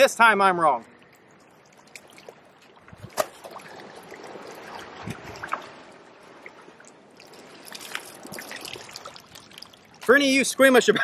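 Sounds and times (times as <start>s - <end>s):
liquid trickling: 0.9s - 10.5s
wet handling noises: 1.0s - 5.7s, 7.2s - 10.2s.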